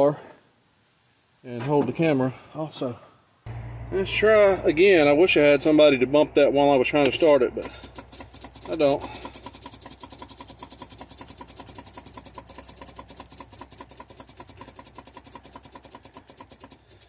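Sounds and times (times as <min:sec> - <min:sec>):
starter solenoid clicking rapidly: 0:07.0 - 0:17.0.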